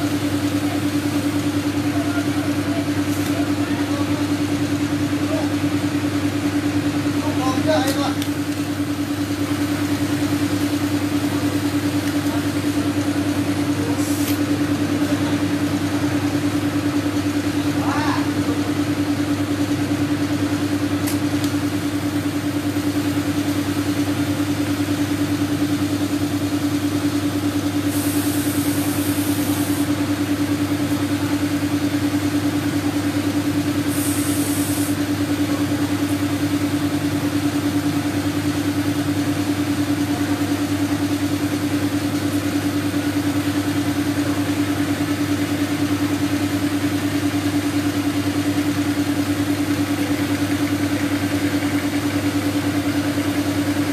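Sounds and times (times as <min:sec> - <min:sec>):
air compressor humming: 0:00.0 - 0:53.9
short high hisses: 0:14.0 - 0:14.4, 0:33.9 - 0:35.0.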